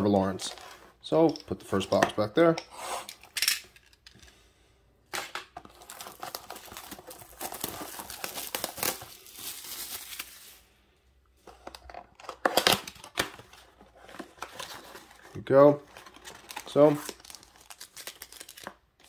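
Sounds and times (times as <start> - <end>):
plastic shrink wrap crinkling: 5.7 - 10.7.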